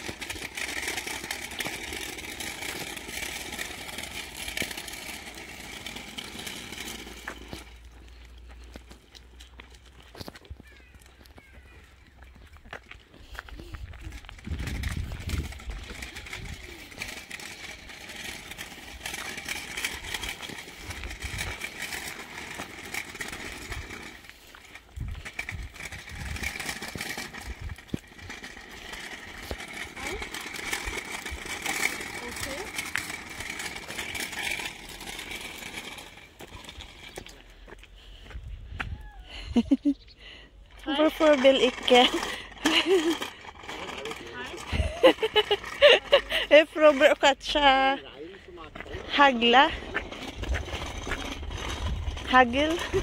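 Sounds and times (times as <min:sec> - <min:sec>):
footsteps: 0:00.0 - 0:39.0
small wheels rolling on asphalt: 0:00.0 - 0:53.0
wind buffeting microphone: 0:13.5 - 0:17.0, 0:24.9 - 0:28.3, 0:38.2 - 0:39.6, 0:49.7 - 0:53.0.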